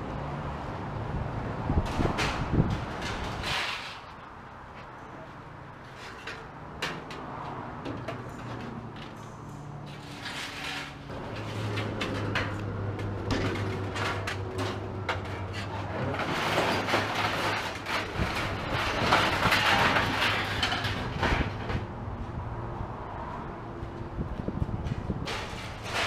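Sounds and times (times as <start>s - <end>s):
scrap metal clattering: 1.9s - 4.3s, 5.8s - 21.9s, 24.9s - 26.0s.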